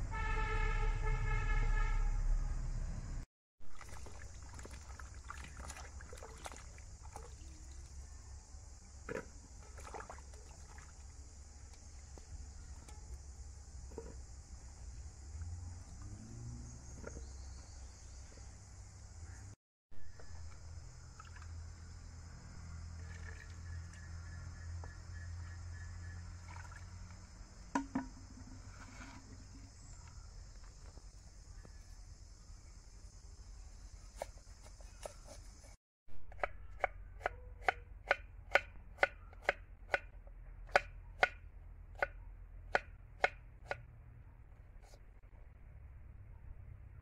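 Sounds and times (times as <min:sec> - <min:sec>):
knife chopping on wooden board: 0:36.3 - 0:40.1.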